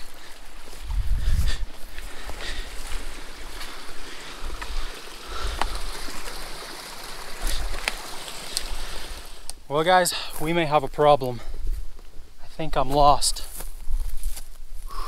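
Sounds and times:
mountain stream flowing: 0:00.0 - 0:11.4
footsteps through brush: 0:00.0 - 0:15.0.

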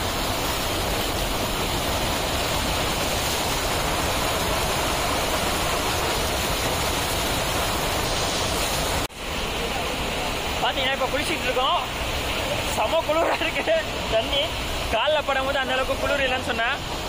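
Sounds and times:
small waterfall pouring: 0:00.0 - 0:17.0.

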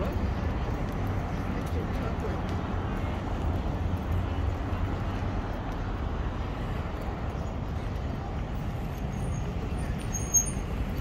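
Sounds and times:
street traffic rumble: 0:00.0 - 0:11.0
high-pitched squeak: 0:10.1 - 0:10.7.

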